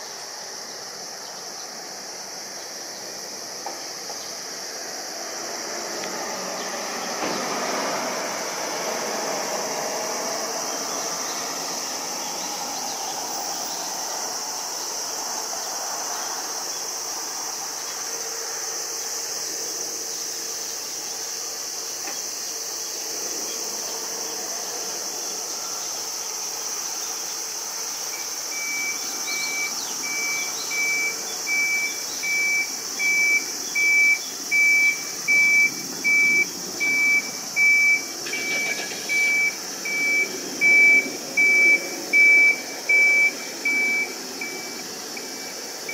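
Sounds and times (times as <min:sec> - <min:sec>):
electronic beep: 0:28.6 - 0:44.8.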